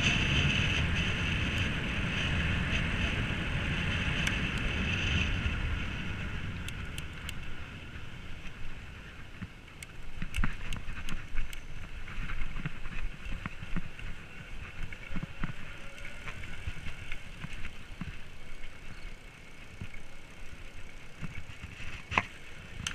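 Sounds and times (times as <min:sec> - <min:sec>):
wind on microphone: 0:00.0 - 0:18.6
bike tyre noise: 0:00.0 - 0:22.9.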